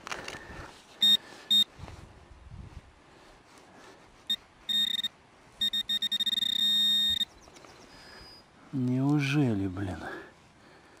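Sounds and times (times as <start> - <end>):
metal detector beeping: 1.0 - 1.7, 4.3 - 8.4.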